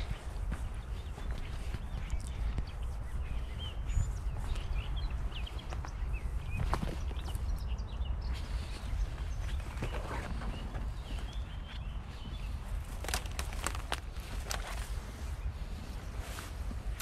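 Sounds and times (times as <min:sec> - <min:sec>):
footsteps on dirt path: 0:00.0 - 0:17.0
small birds chirping: 0:00.0 - 0:17.0
sharp crackle of dry brush: 0:12.6 - 0:17.0.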